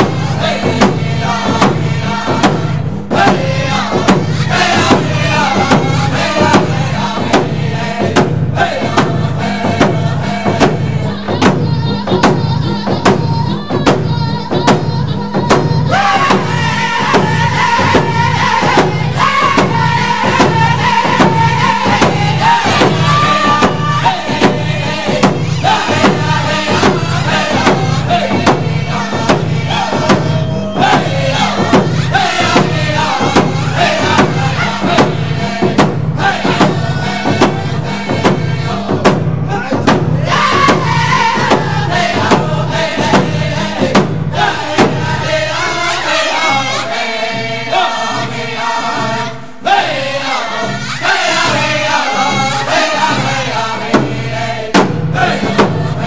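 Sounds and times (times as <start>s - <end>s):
group of voices chanting: 0.0s - 56.0s
steady drumbeat: 0.0s - 56.0s.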